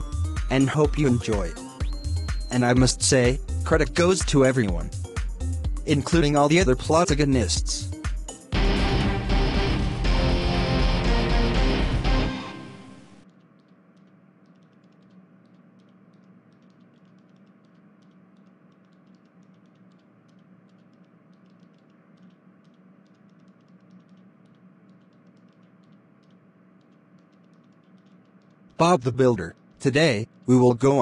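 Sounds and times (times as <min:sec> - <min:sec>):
light irregular ticks: 0:00.0 - 0:08.5, 0:13.2 - 0:31.0
low steady hum: 0:00.0 - 0:31.0
guitar music: 0:08.6 - 0:13.2.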